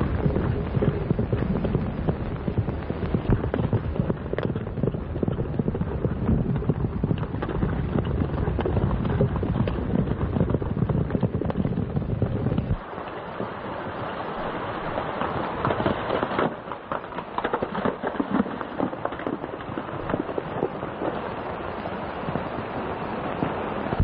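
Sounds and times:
low rumble: 0.0 - 12.9
horse hoofbeats galloping: 0.0 - 13.5, 14.3 - 24.0.

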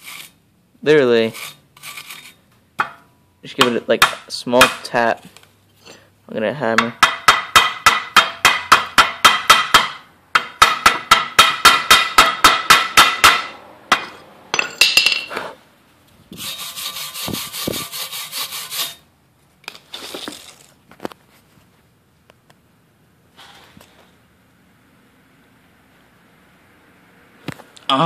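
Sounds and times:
scrubbing on metal: 1.2 - 2.4, 16.3 - 19.0.

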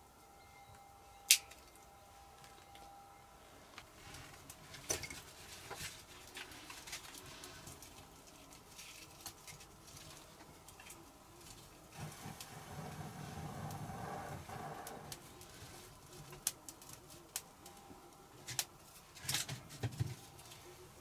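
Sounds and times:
twigs crackling and snapping: 5.7 - 11.7.

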